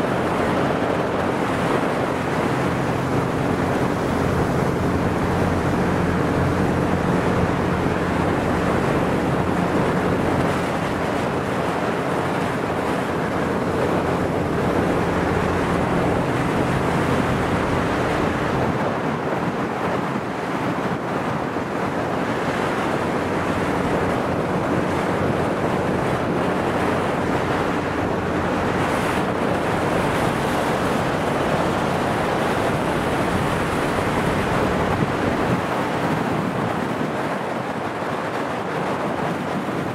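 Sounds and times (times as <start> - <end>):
motorboat engine humming: 0.0 - 39.9
water rushing along hull: 0.0 - 39.9
wind buffeting microphone: 0.0 - 39.9.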